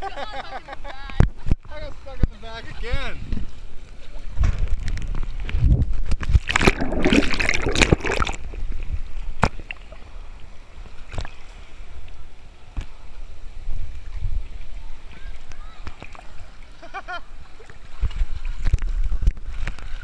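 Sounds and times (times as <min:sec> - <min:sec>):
water splashing and sloshing: 0:03.9 - 0:13.1, 0:13.7 - 0:20.0.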